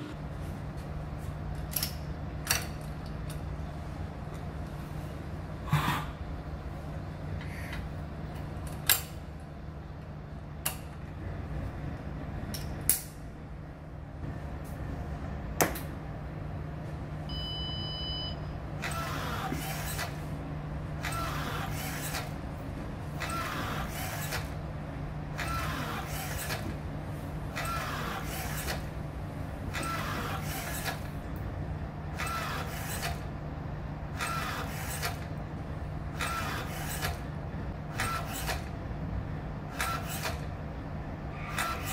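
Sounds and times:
steady low hum: 0.0 - 41.9
short electronic beep: 17.3 - 18.6
motor whir: 18.8 - 20.2, 21.0 - 22.3, 23.2 - 24.5, 25.4 - 26.7, 27.6 - 28.8, 29.7 - 31.1, 34.2 - 35.2, 36.2 - 37.2, 41.4 - 41.9.

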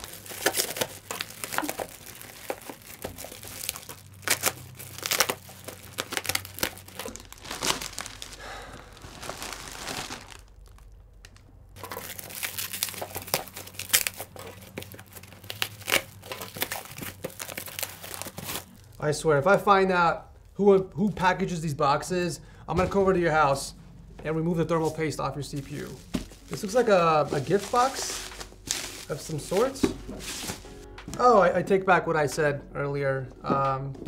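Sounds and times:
plastic wrapping crinkling: 0.0 - 19.0, 24.7 - 30.9
plastic wrapping ripping: 0.0 - 19.0, 25.6 - 30.7.

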